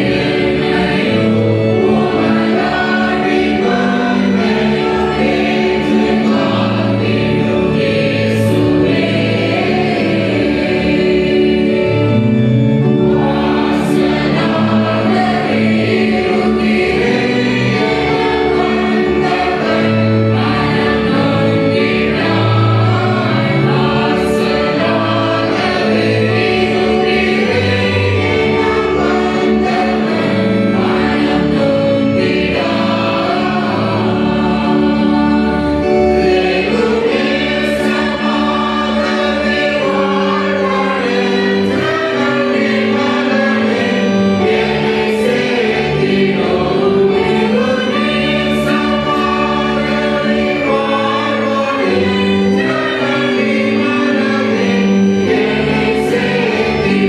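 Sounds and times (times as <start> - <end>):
congregation singing a hymn: 0.0 - 57.0.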